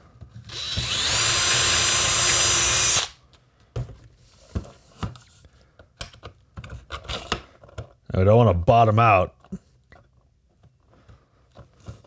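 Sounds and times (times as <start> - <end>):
cordless drill whining: 0.5 - 3.2.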